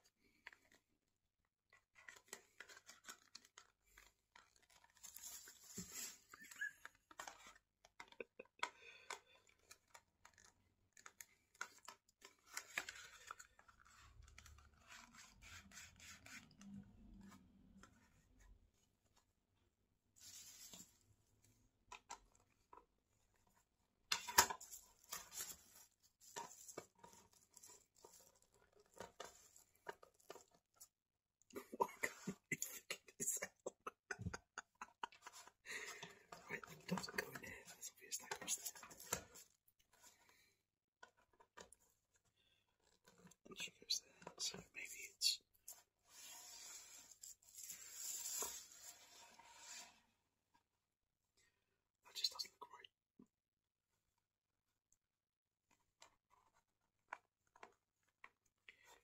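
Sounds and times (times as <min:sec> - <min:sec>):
handling scratches and clicks: 0:01.7 - 0:18.4, 0:21.9 - 0:30.9.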